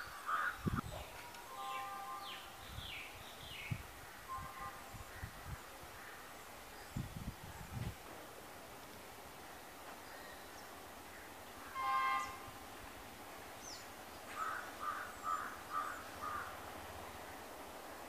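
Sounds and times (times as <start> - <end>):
crow cawing: 0.3 - 0.6, 14.4 - 16.6
distant train horn: 1.2 - 2.6, 4.2 - 5.2, 11.6 - 12.8.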